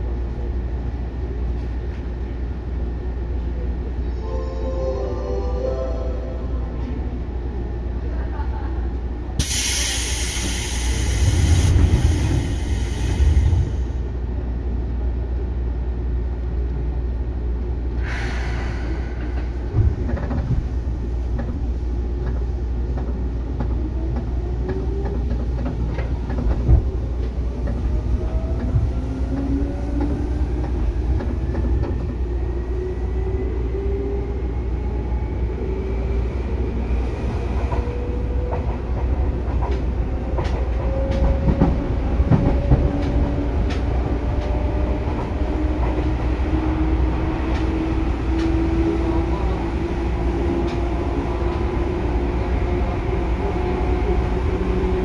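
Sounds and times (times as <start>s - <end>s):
air hiss: 9.4s - 13.9s.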